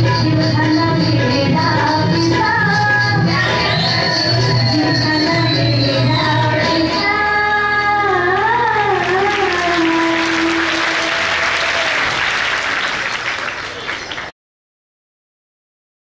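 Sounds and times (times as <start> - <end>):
audience applause: 8.4 - 14.3.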